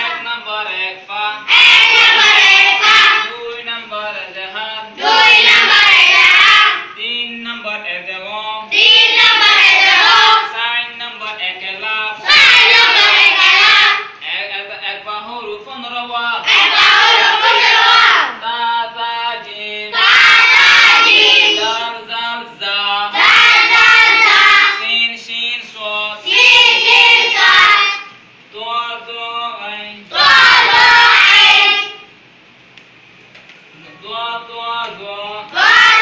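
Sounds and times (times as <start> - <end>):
children chanting in unison: 1.4 - 3.3, 5.0 - 7.0, 8.7 - 10.6, 12.2 - 14.2, 16.4 - 18.4, 19.9 - 21.9, 23.1 - 24.9, 26.2 - 28.1, 30.1 - 32.1, 35.5 - 36.0.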